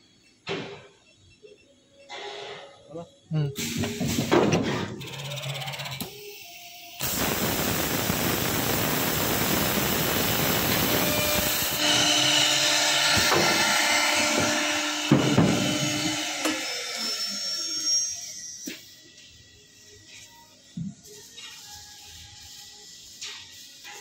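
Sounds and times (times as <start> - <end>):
loud steady machine noise: 7.0 - 16.9.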